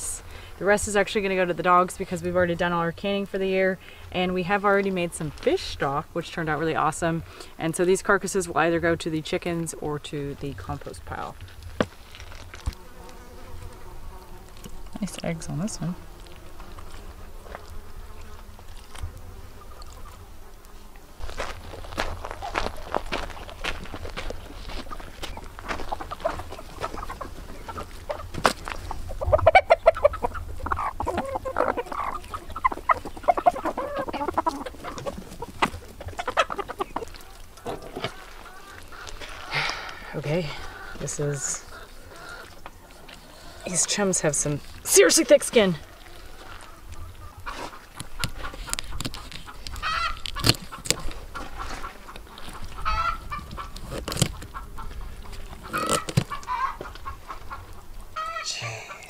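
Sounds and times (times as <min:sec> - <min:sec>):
chickens clucking: 0:14.6 - 0:20.4, 0:22.0 - 0:59.0
poultry honking squawks: 0:49.8 - 0:50.2, 0:52.8 - 0:53.7, 0:55.6 - 0:57.4.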